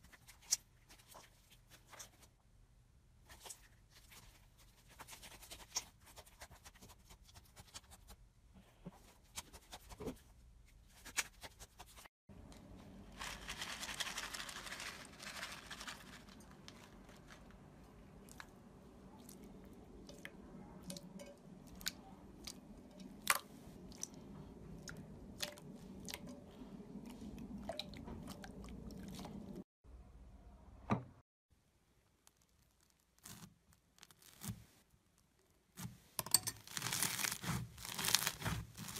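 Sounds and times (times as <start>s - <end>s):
slime squelching and crackling: 36.6s - 38.9s.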